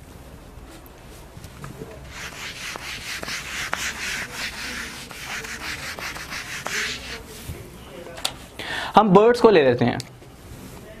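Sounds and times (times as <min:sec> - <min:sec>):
eraser rubbing on whiteboard: 0:02.1 - 0:07.3.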